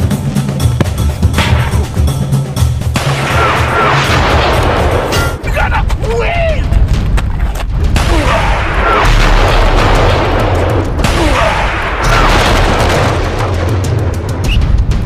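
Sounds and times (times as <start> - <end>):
heavy low rumble: 0.0 - 15.0
explosions and gunfire: 2.9 - 5.4, 7.7 - 14.9.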